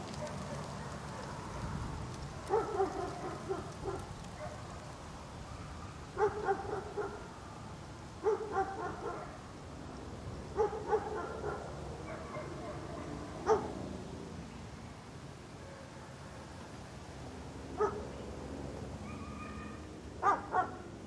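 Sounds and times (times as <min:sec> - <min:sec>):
low steady background noise: 0:00.0 - 0:21.0
dog barking: 0:02.5 - 0:04.7, 0:05.5 - 0:07.2, 0:08.2 - 0:09.4, 0:10.6 - 0:13.7, 0:15.6 - 0:16.1, 0:17.8 - 0:18.0, 0:19.1 - 0:20.8.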